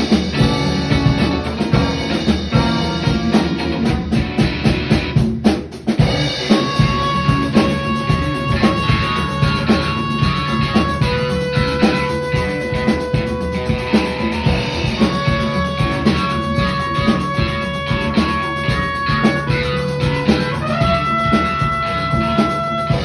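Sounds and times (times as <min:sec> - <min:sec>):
rock band playing: 0:00.0 - 0:23.0
long held high notes: 0:06.0 - 0:23.0.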